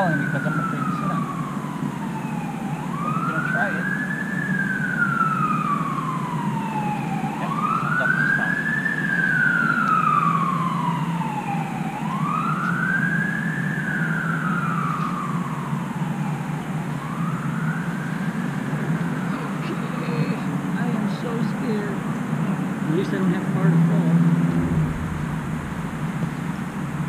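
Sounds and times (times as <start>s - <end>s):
siren wailing: 0.0s - 27.0s
low rumble: 18.2s - 27.0s.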